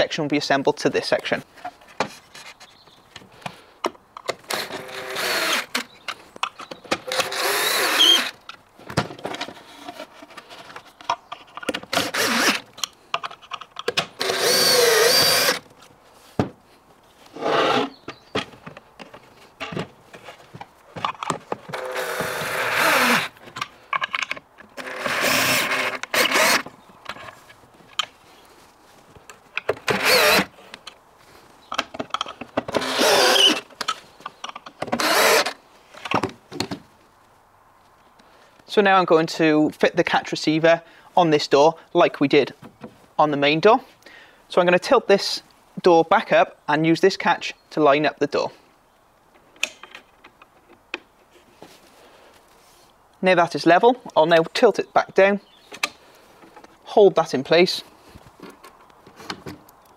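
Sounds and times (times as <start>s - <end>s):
drill driving screws: 4.4s - 5.9s, 7.0s - 8.4s, 11.9s - 12.6s, 14.2s - 15.6s, 21.7s - 23.4s, 24.8s - 26.6s, 29.9s - 30.5s, 32.7s - 33.6s, 34.9s - 35.6s.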